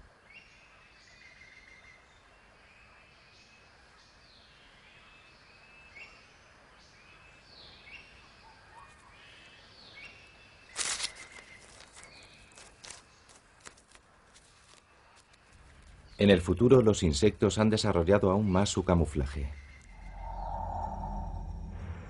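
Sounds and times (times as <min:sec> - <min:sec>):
bird-like chirps: 0:18.4 - 0:22.0
sudden loud noise: 0:19.9 - 0:22.0.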